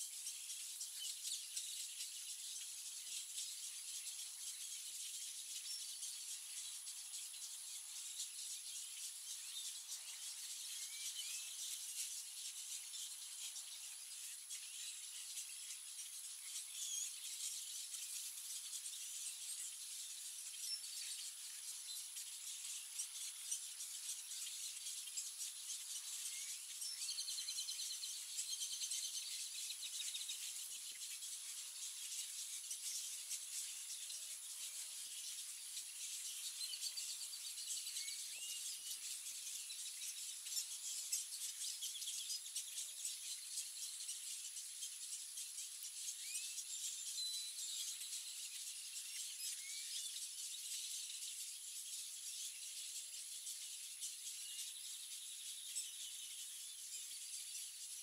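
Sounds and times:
high-pitched hiss: 0.0 - 58.0
thin constant high tone: 0.0 - 58.0.

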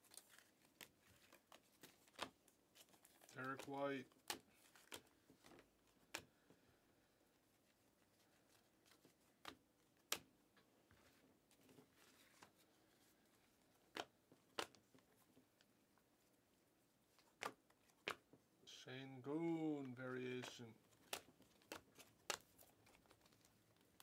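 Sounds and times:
cards sliding: 0.0 - 6.6, 17.2 - 18.3, 19.8 - 24.0.

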